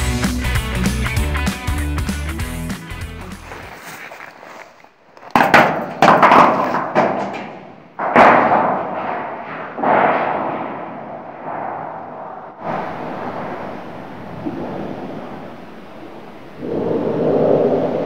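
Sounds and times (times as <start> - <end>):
gear knocking and scraping on rock: 3.4 - 9.5.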